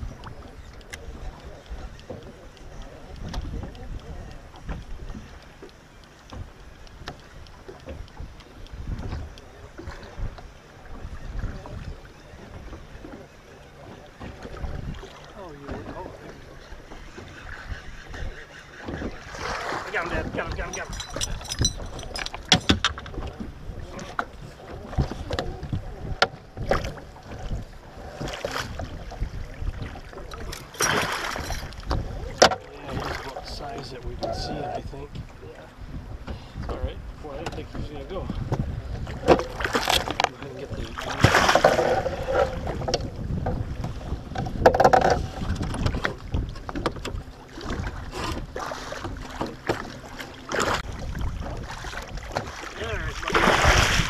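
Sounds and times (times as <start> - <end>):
wind buffeting microphone: 0.0 - 5.6, 6.4 - 12.8, 13.8 - 54.0
water lapping at boat: 0.0 - 54.0
water splashing: 6.2 - 34.5, 39.0 - 54.0
gear knocks and clicks: 20.6 - 23.2
fish splashing in landing net: 41.1 - 41.9, 53.2 - 54.0.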